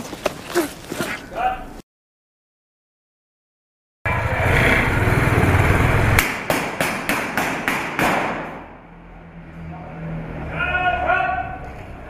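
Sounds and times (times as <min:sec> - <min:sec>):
loud rumbling: 0:04.1 - 0:06.5
pistol shots: 0:06.2 - 0:08.7.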